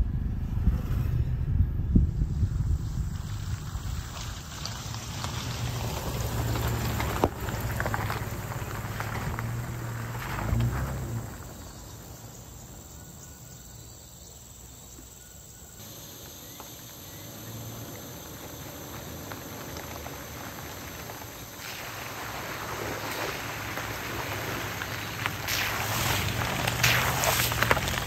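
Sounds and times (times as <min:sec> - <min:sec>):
car engine running: 0:00.0 - 0:11.6
insects chirring: 0:02.4 - 0:28.0
tyres on wet gravel: 0:02.5 - 0:13.6, 0:15.8 - 0:28.0.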